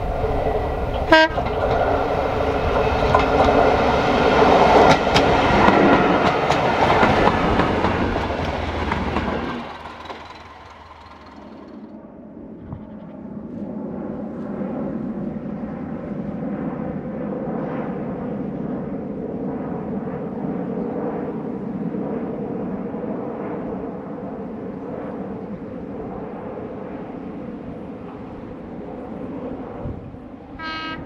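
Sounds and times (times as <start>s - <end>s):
diesel engine droning: 5.0s - 12.0s.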